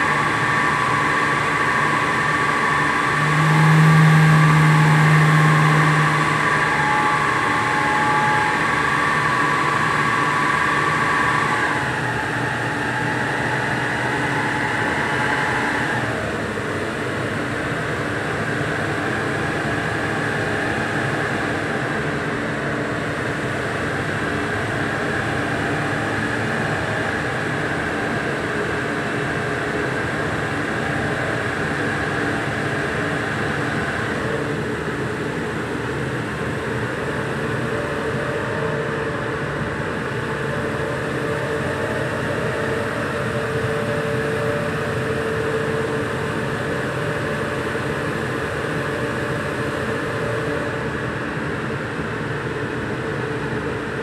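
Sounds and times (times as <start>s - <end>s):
car engine running: 0.0s - 28.7s
cooling fan whirring: 0.0s - 54.0s.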